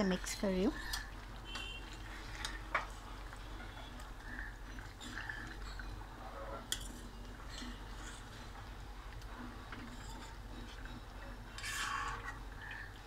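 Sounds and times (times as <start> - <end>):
spoon scraping in a pan: 9.5 - 12.9.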